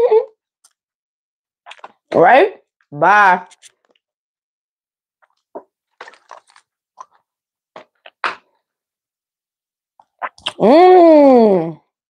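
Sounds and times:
person gulping water: 0:01.7 - 0:02.1, 0:05.2 - 0:08.6, 0:10.0 - 0:10.8.

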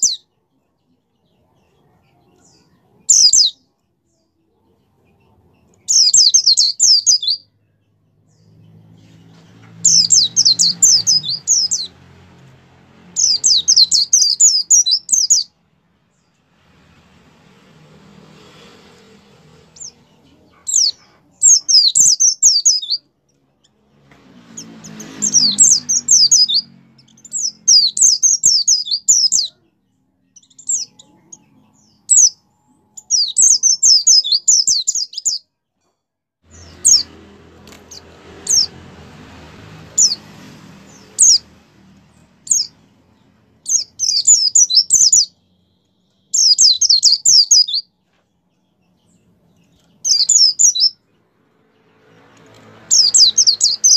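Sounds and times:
bird twittering song: 0:00.0 - 0:12.5, 0:13.1 - 0:16.4, 0:19.7 - 0:23.8, 0:24.5 - 0:35.5, 0:36.5 - 0:38.7, 0:39.9 - 0:53.9
bird sharp chirps: 0:05.0 - 0:12.0, 0:13.2 - 0:16.4, 0:19.7 - 0:23.8, 0:24.5 - 0:35.5, 0:42.4 - 0:51.2, 0:52.8 - 0:53.9.

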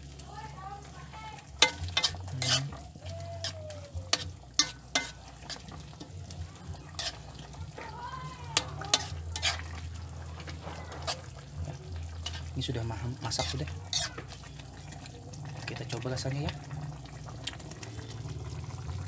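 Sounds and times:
soup simmering: 0:00.0 - 0:19.0
spoon scraping and knocking pan: 0:01.6 - 0:12.6, 0:13.2 - 0:14.5.

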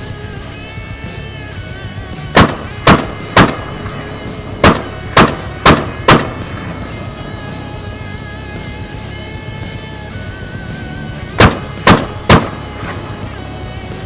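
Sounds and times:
guitar music: 0:00.0 - 0:14.0
rifle shots: 0:02.3 - 0:06.8, 0:11.4 - 0:13.1.

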